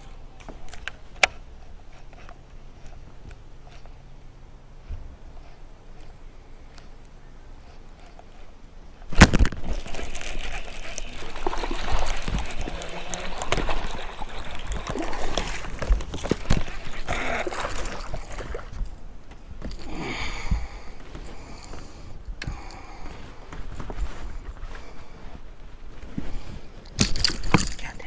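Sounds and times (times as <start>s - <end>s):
fish splashing in water: 9.2s - 18.8s.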